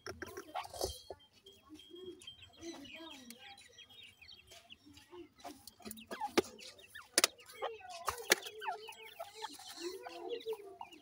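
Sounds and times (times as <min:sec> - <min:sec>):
chicks peeping: 0:00.0 - 0:11.0
clucking calls: 0:05.4 - 0:11.0.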